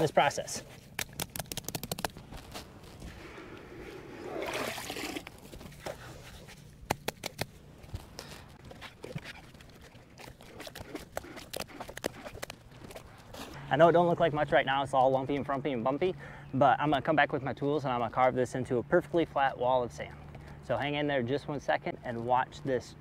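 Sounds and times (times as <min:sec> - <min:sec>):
wet sand sloshing: 0:02.4 - 0:06.3.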